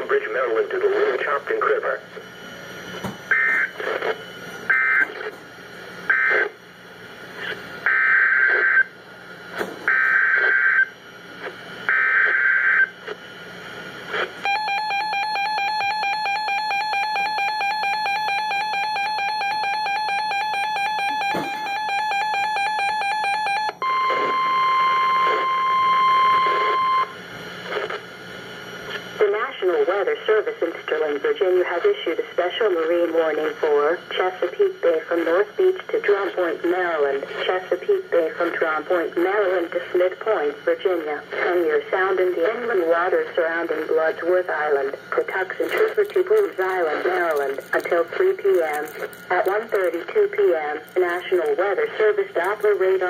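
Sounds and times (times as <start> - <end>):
steady warning alert tone: 14.4 - 27.1
fast-pulsing electronic alarm beep: 14.4 - 27.2.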